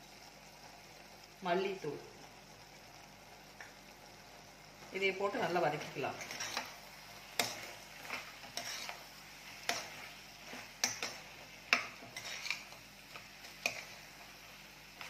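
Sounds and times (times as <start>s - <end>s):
spatula scraping pot: 6.1s - 6.8s, 7.4s - 14.1s.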